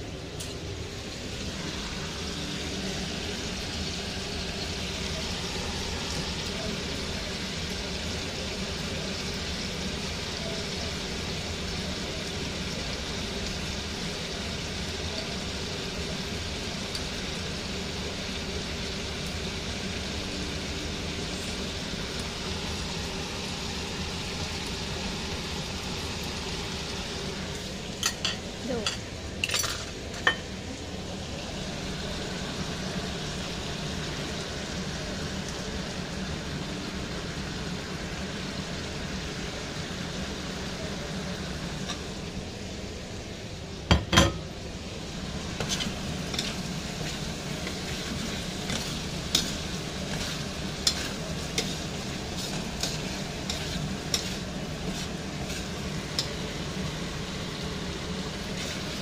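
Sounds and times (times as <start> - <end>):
wings sizzling in oil: 0.0 - 59.0
metal spatula scraping wok: 45.6 - 56.4.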